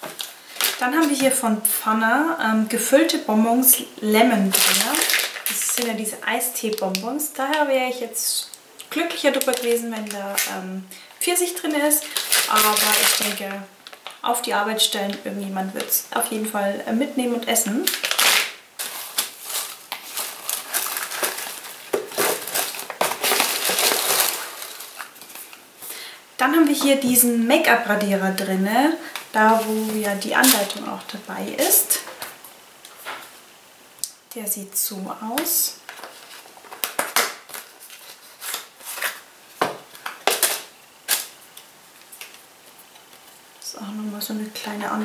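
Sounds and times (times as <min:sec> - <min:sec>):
packaging rustling and crinkling: 0:00.0 - 0:01.4, 0:04.4 - 0:06.0, 0:08.6 - 0:14.3, 0:17.7 - 0:25.9, 0:29.0 - 0:33.4, 0:35.8 - 0:43.6.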